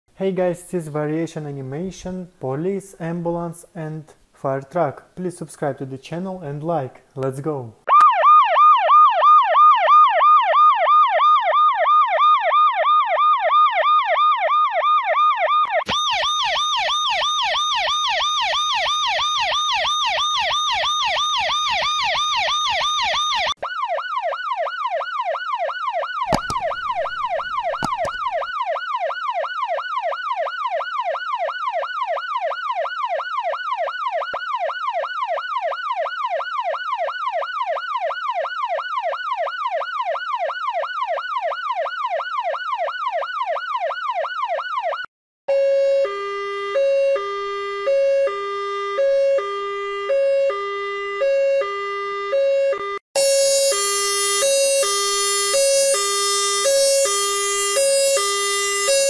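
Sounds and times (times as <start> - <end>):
siren yelping: 7.9 - 59.0
brief clicks: 26.3 - 28.4.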